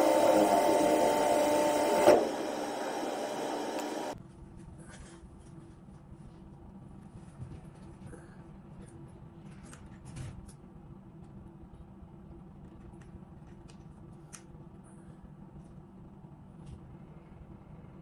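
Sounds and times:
ship engines humming: 0.0 - 4.2.

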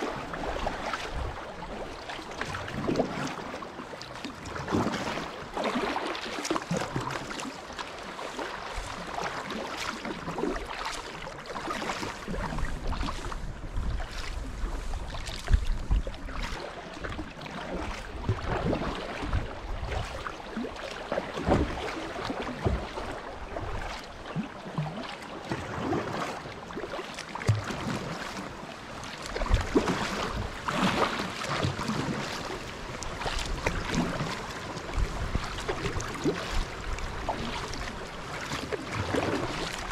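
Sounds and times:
paddle strokes splashing: 0.0 - 39.9
water rippling: 0.0 - 39.9
wind buffeting microphone: 12.3 - 16.4, 32.8 - 38.0.

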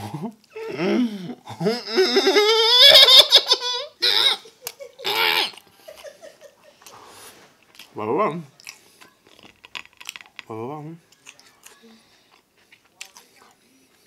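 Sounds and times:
man laughing with mouth full: 1.4 - 6.8.

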